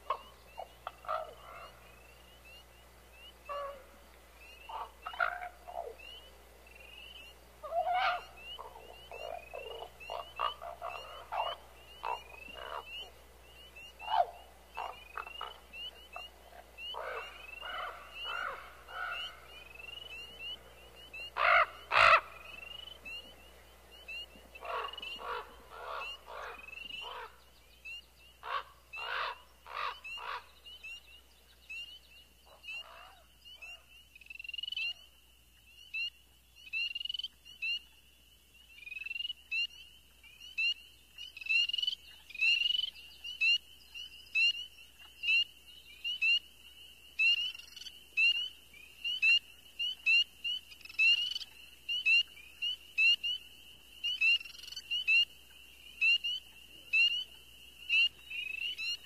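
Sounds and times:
high-pitched animal chorus: 0.0 - 31.0
lower animal calls: 0.0 - 31.0.

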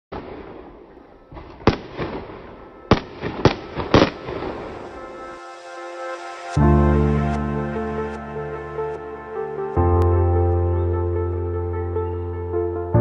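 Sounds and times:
fireworks popping and crackling: 0.1 - 4.9
fireworks bangs: 0.1 - 5.1
soft music: 0.6 - 13.0.

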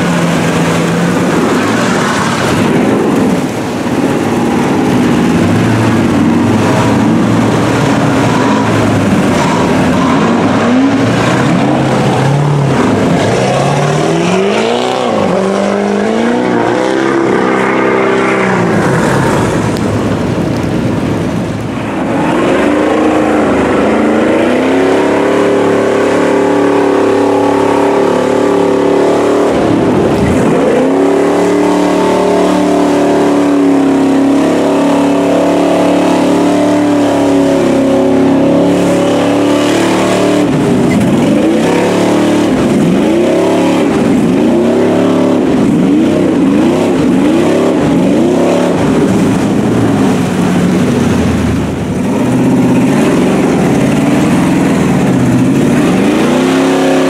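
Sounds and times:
truck engines revving: 0.0 - 57.0
tyres churning water: 0.0 - 57.0.

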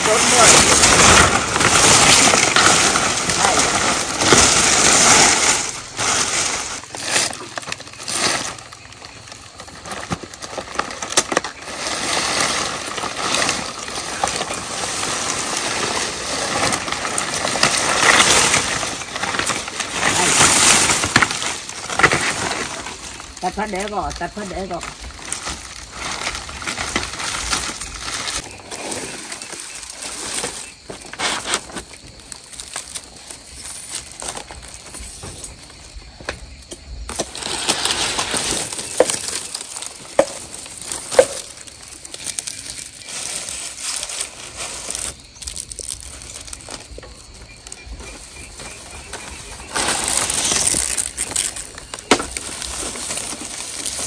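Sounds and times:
rustling and crunching handling: 0.0 - 54.0.

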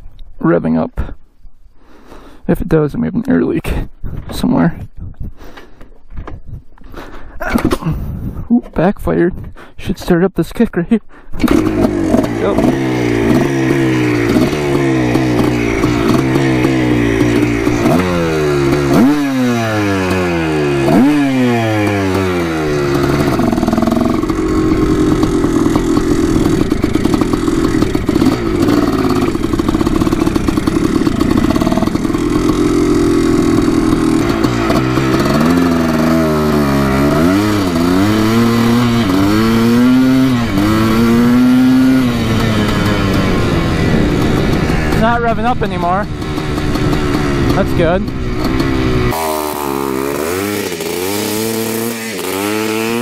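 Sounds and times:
dirt bike engine revving: 11.4 - 53.0.

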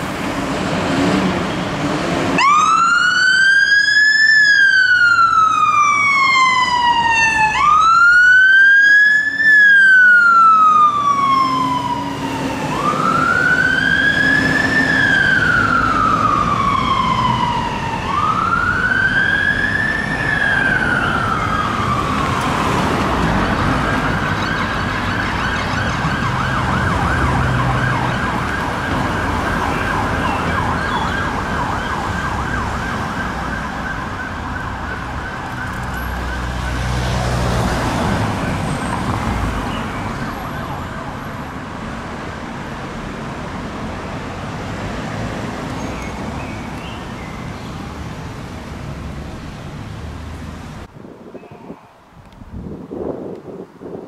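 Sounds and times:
traffic rumbling: 0.0 - 54.0
fire engine siren wailing: 2.3 - 42.6.

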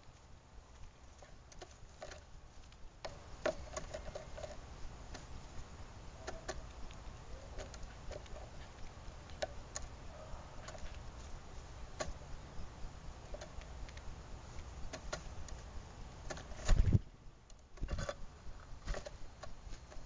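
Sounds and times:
beaks tapping on a feeder: 6.2 - 11.1, 11.9 - 12.3, 13.2 - 15.6.

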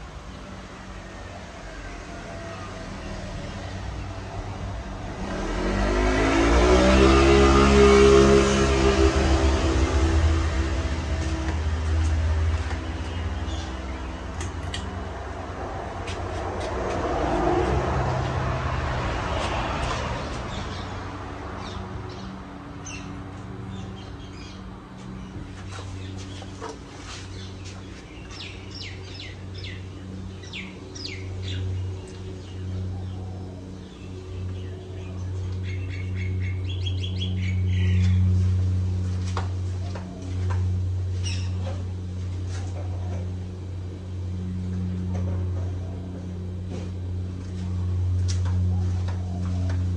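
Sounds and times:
passing vehicle: 0.0 - 49.9
birds chirping: 11.3 - 15.0, 20.3 - 38.4, 41.2 - 41.8.

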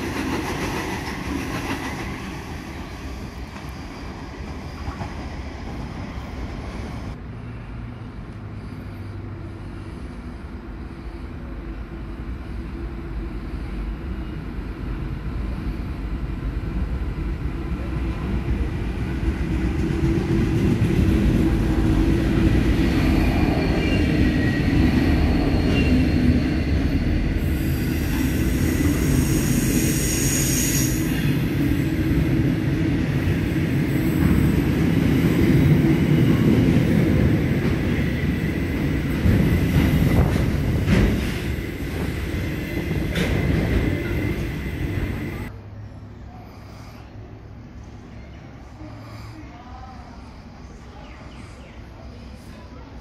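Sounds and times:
wheels rumbling on rail: 0.0 - 46.3
diesel locomotive engine: 0.0 - 53.0.

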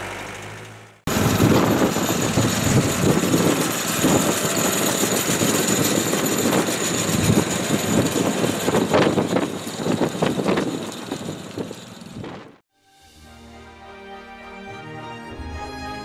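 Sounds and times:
small cart engine running: 0.0 - 12.6
rattling: 0.6 - 12.6.

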